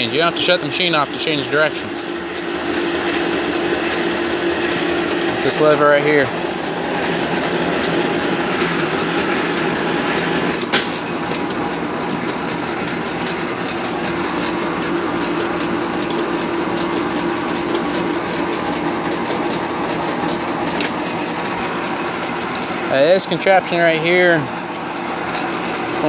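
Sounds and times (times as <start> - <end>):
lathe running: 0.0 - 26.0
sharp clack: 10.5 - 11.6.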